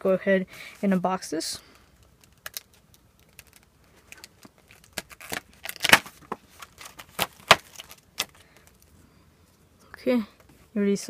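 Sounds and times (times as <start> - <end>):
plastic wrapping crinkling: 2.0 - 8.9.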